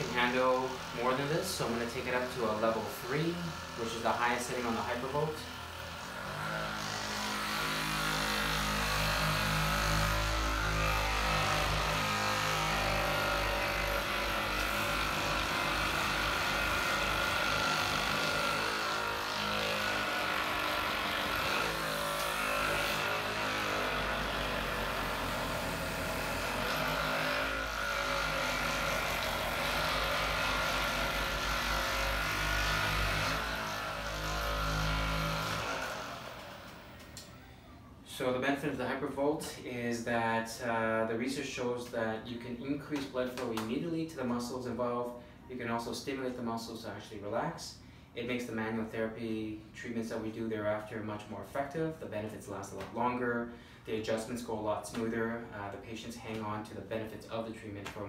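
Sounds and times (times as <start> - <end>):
percussion massager whirring: 0.0 - 37.8.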